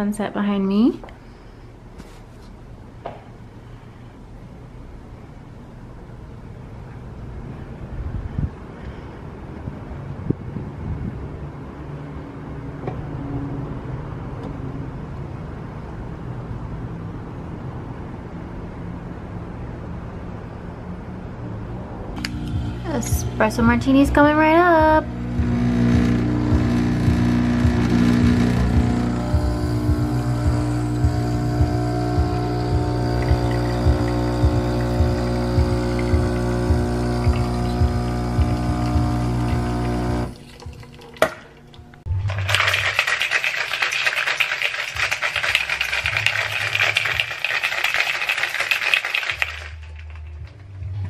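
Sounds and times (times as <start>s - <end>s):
espresso machine pump buzzing: 22.2s - 40.4s
ice rattling in cocktail shaker: 42.2s - 50.4s.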